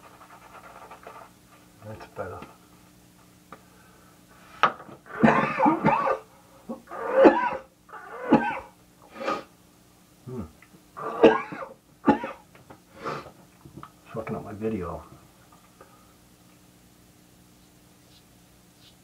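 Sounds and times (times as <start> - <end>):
man coughing: 5.1 - 6.3, 6.9 - 8.7, 11.0 - 12.4.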